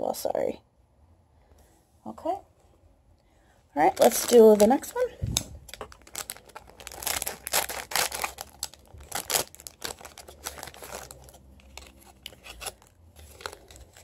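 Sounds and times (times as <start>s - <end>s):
foil crinkling: 3.8s - 14.0s
plastic rustles and clicks: 3.8s - 14.0s.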